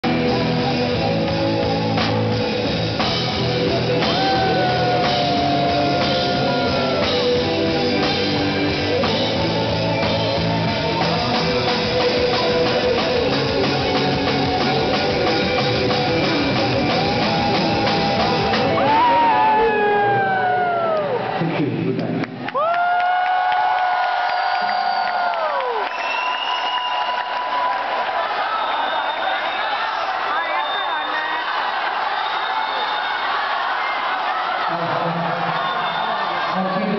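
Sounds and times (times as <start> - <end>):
drum kit: 0.0 - 21.0
live rock band playing: 0.0 - 21.0
electric guitar: 0.0 - 21.2.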